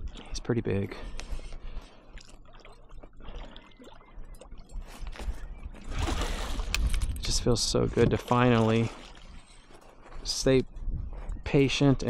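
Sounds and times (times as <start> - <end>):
shallow water splashing: 1.2 - 10.3.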